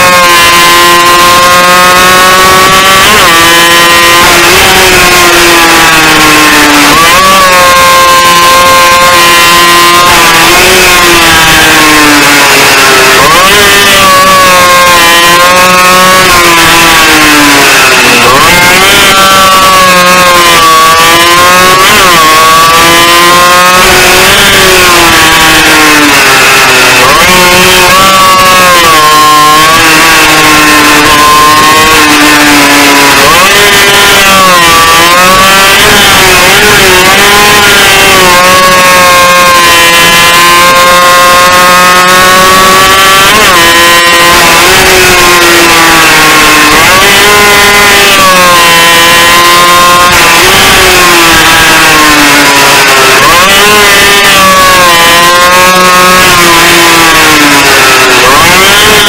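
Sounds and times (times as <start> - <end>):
racing motorcycle engine: 0.0 - 59.0.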